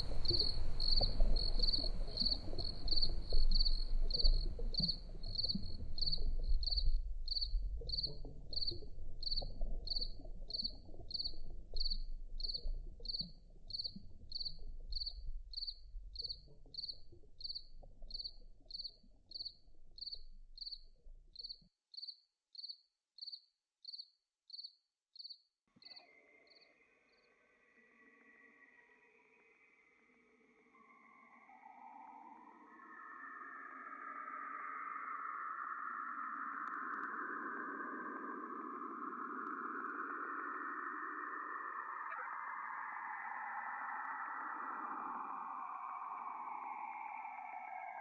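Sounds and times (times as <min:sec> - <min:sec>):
cricket chirping: 0:00.0 - 0:27.3.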